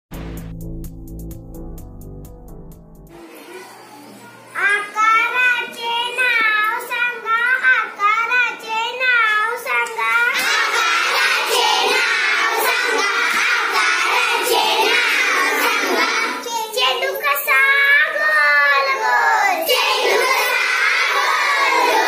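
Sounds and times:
girls singing a children's song: 0:09.8 - 0:22.0.

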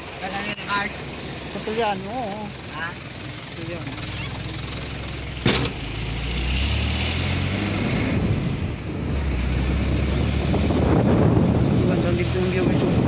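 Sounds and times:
vehicle engine running: 0:00.0 - 0:06.8, 0:08.1 - 0:13.0
road noise: 0:00.0 - 0:13.0
sharp knock: 0:05.4 - 0:05.8.

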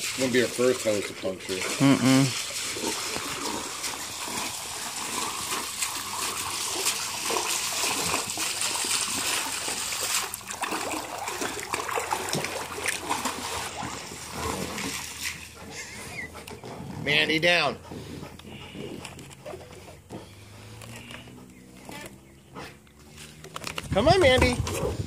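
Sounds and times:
garden hose spraying water: 0:00.0 - 0:15.6
dog splashing in water: 0:00.0 - 0:16.6.

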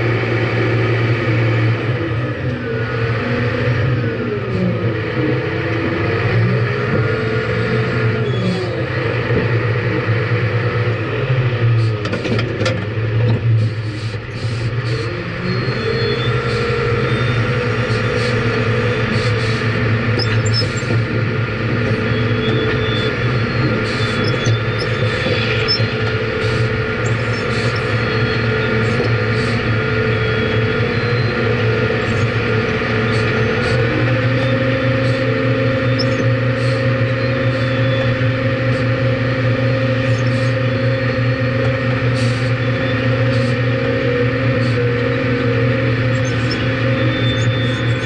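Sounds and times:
diesel engine drone: 0:00.0 - 0:48.0
clanks and rattles of stones: 0:12.0 - 0:13.4.

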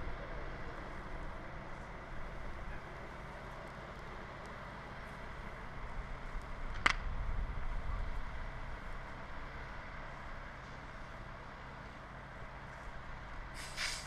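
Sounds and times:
burning brush crackling: 0:00.0 - 0:14.0
vehicle engine rumbling: 0:00.0 - 0:14.0
sharp crack: 0:06.7 - 0:07.1.

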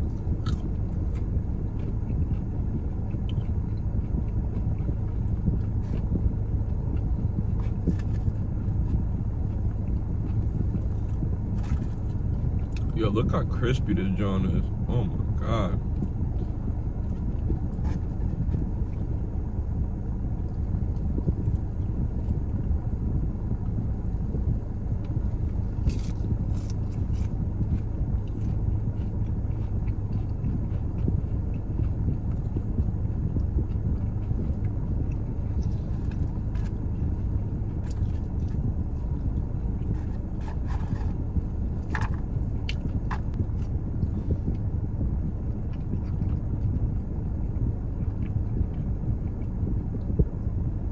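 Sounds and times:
crunchy bites of fried chicken: 0:00.0 - 0:14.4, 0:25.0 - 0:44.7
steady low rumble: 0:00.0 - 0:50.9.

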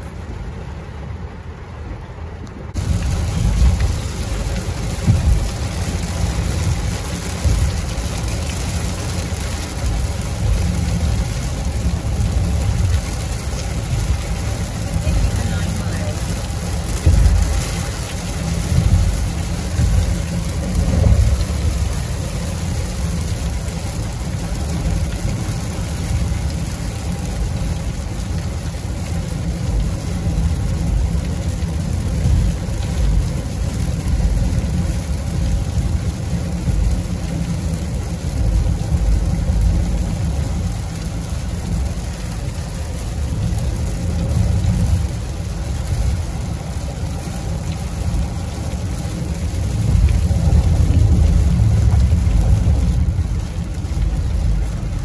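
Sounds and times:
rain and road spray hissing: 0:00.0 - 0:55.0
tyres and engine rumbling: 0:00.0 - 0:55.0.

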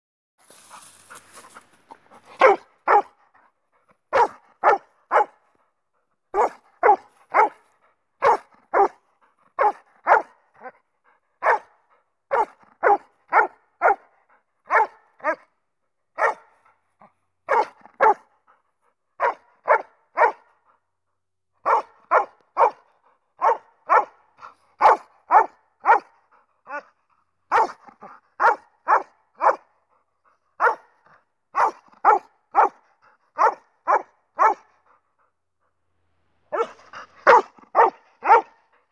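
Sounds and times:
dog barking: 0:02.4 - 0:03.5, 0:04.1 - 0:05.5, 0:06.3 - 0:10.8, 0:11.4 - 0:15.6, 0:16.2 - 0:16.6, 0:17.4 - 0:18.4, 0:19.2 - 0:20.6, 0:21.6 - 0:29.8, 0:30.6 - 0:35.0, 0:36.5 - 0:38.8.

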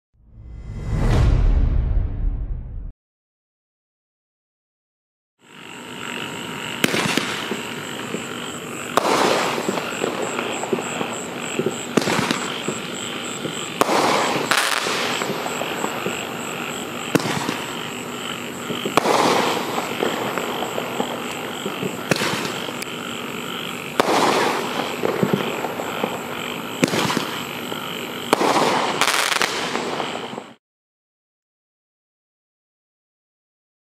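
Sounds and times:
firework crackling: 0:06.1 - 0:30.6
firework shots: 0:06.8 - 0:18.0, 0:18.6 - 0:22.9, 0:23.9 - 0:30.6.

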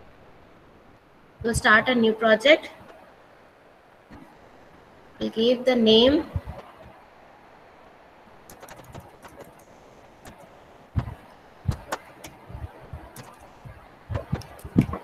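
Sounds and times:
computer keyboard typing: 0:08.5 - 0:15.0.

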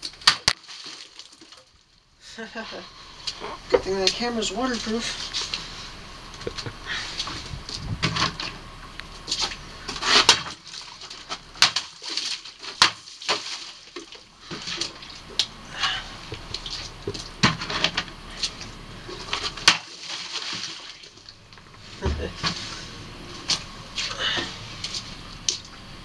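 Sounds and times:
water splashing: 0:00.0 - 0:02.0, 0:02.8 - 0:26.0
plastic jugs handled: 0:09.2 - 0:25.7.

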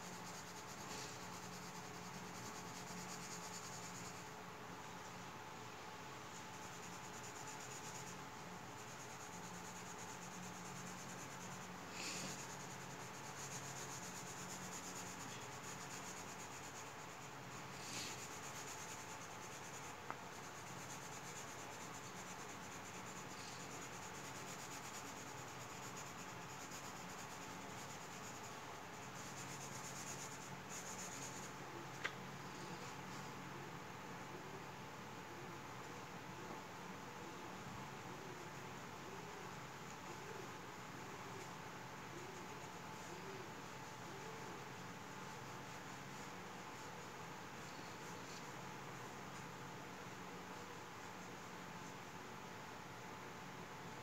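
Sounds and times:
pencil scratching on paper: 0:00.0 - 0:04.3, 0:06.4 - 0:31.6
steady low hum: 0:00.0 - 0:54.0.

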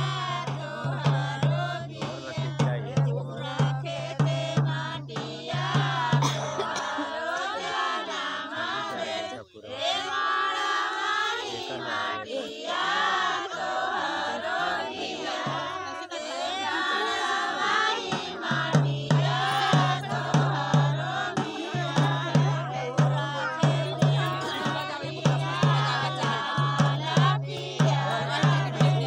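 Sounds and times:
steady drumbeat: 0:00.0 - 0:07.0, 0:14.4 - 0:29.0
group of people singing: 0:00.0 - 0:29.0.

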